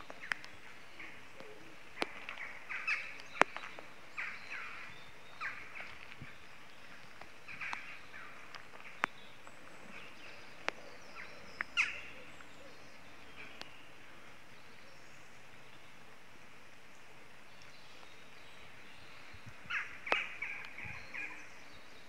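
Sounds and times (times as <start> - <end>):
water dripping ticks: 0.0 - 13.8, 17.4 - 18.8, 19.4 - 21.4
rain hissing: 0.0 - 21.7
small birds chirping: 0.0 - 22.0.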